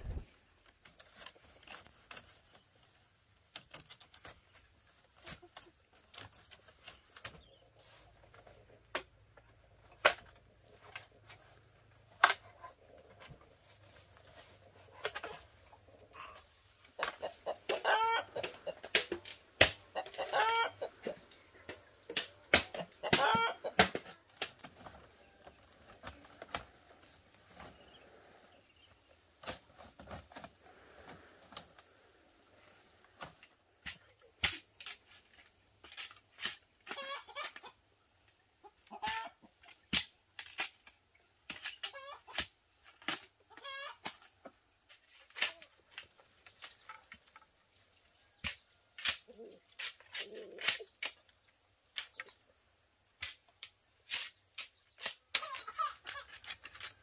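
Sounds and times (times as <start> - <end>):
high insect drone: 0.0 - 57.0
chickens clucking: 12.5 - 25.0, 38.6 - 39.6, 43.5 - 44.0.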